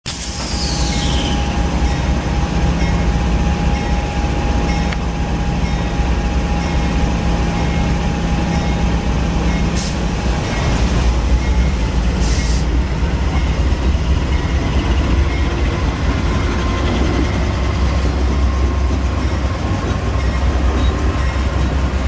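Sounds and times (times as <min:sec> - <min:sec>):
diesel locomotive idling rumble: 0:00.1 - 0:22.0.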